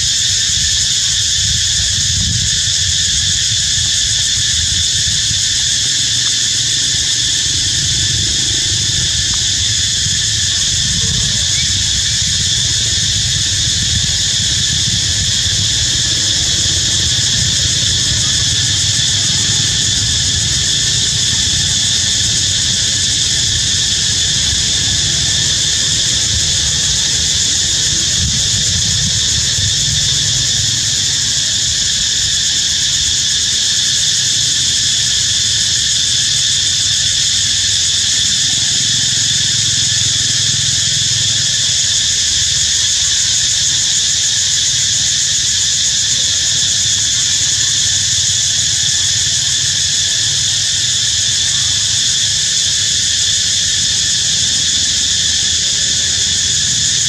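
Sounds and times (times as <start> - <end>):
constant low rumble: 0.0 - 32.6
insect chorus: 0.0 - 57.0.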